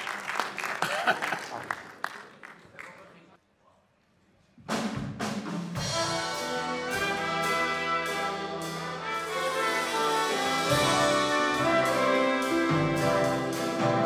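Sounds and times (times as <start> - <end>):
drums: 4.3 - 14.0
bass: 4.6 - 14.0
brass accented hits: 5.8 - 14.0
held brass chords: 5.8 - 14.0.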